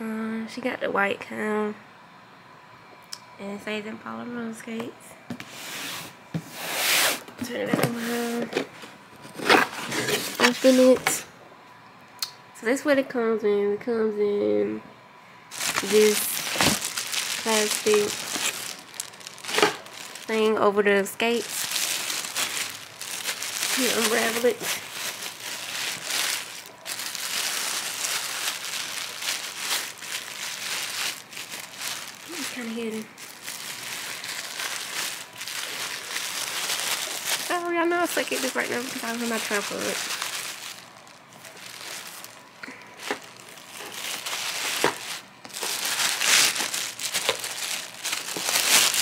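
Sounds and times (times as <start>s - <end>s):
plastic bag crinkling: 7.8s - 11.2s, 15.5s - 49.0s.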